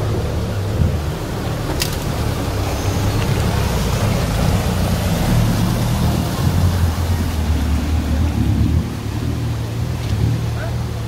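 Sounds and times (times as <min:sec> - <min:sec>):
engine running with low drone: 0:00.0 - 0:11.0.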